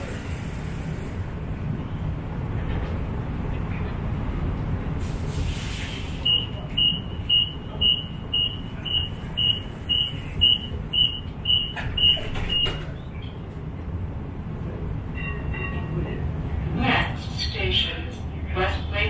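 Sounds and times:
streetcar high warning beeps: 5.8s - 13.5s, 14.9s - 19.0s.

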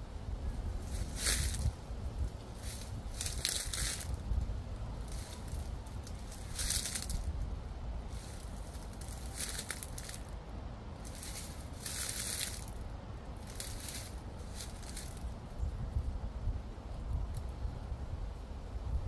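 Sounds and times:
wind rumble on microphone: 0.0s - 19.0s
footsteps crunching dry leaves: 0.8s - 10.4s, 11.0s - 15.3s.

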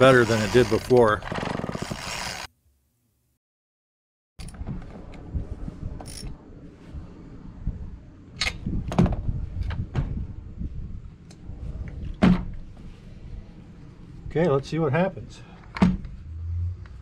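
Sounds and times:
low rumble: 4.5s - 14.3s, 15.9s - 17.0s.

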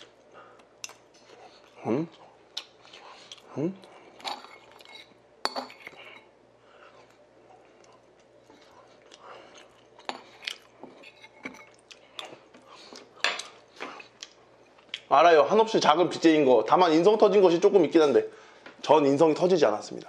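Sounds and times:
soft chewing: 0.0s - 15.1s.

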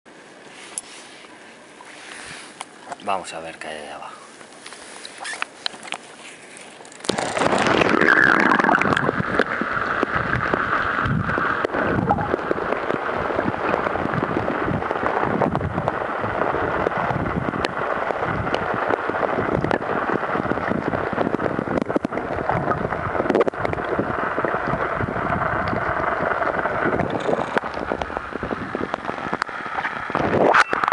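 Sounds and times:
underwater rushing and gurgling: 4.7s - 30.9s
underwater clicks: 6.9s - 16.0s, 16.8s - 30.9s.

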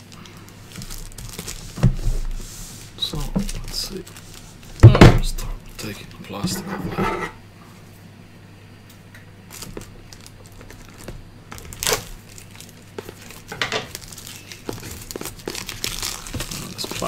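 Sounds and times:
plastic wrap crinkling and tearing: 0.0s - 5.9s, 9.5s - 17.0s.

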